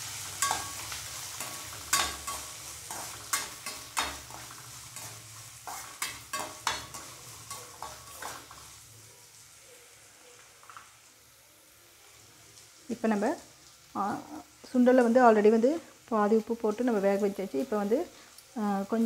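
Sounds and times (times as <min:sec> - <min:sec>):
onions sizzling in oil: 0:00.0 - 0:19.0
spatula scraping metal pan: 0:00.4 - 0:08.7.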